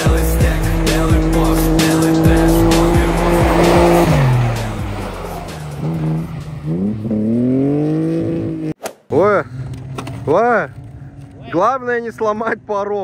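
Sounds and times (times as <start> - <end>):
background music with beat: 0.0 - 6.8
car engine revving: 0.0 - 8.8.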